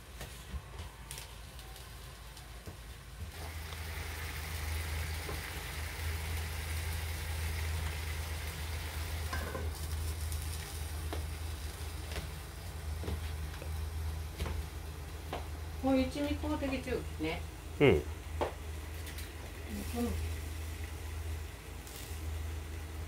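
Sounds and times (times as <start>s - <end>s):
food sizzling in a frying pan: 1.1s - 15.1s, 18.6s - 23.0s.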